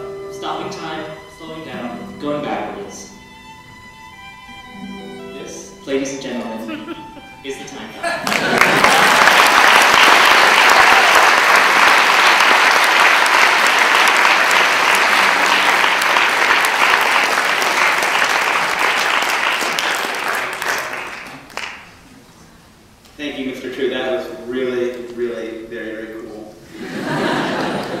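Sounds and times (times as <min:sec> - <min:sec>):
audience clapping: 0:08.2 - 0:22.1, 0:27.0 - 0:28.0.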